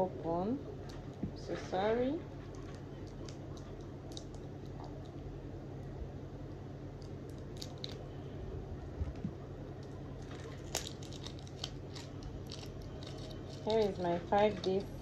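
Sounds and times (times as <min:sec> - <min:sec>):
steady low hum: 0:00.0 - 0:15.0
plastic crinkling: 0:02.3 - 0:05.2, 0:07.0 - 0:08.2, 0:09.8 - 0:14.8.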